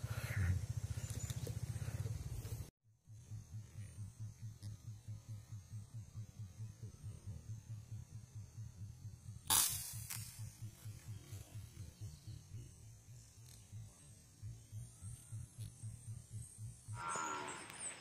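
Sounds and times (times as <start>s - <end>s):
pulsing low hum: 0.0s - 18.0s
air rifle shot: 9.5s - 10.4s.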